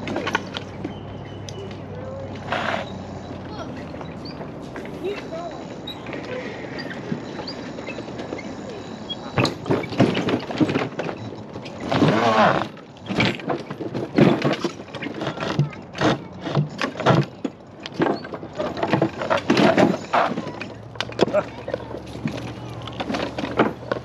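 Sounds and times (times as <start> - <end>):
mobility scooter knocking over planks: 9.4 - 24.0.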